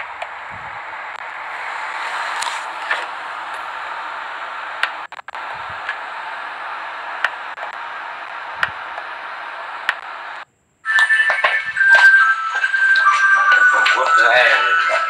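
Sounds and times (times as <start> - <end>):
steady hiss: 0.0 - 10.8
faint clicks: 7.0 - 10.4.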